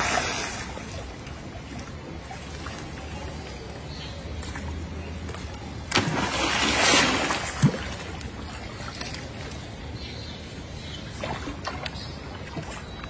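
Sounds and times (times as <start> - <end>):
water sloshing and lapping: 0.0 - 9.9, 11.0 - 13.0
monkey splashing in water: 5.9 - 9.3.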